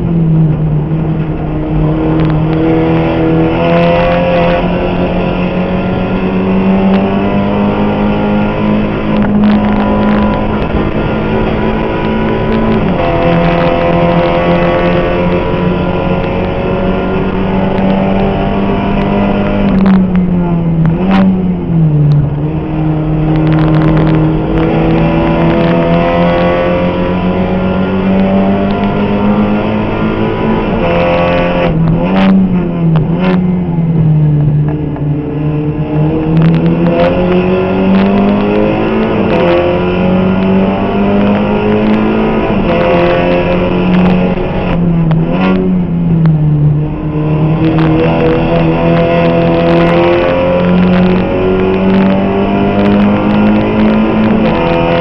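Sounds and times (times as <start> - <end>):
race car engine revving: 0.0 - 55.0
sharp clicks: 8.6 - 16.6, 18.9 - 21.3.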